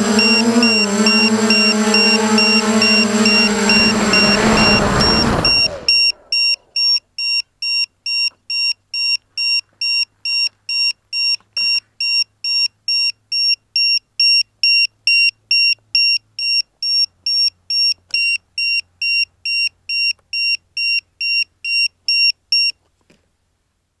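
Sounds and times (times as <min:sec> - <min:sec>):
electronic buzzer beeping: 0:00.0 - 0:06.9.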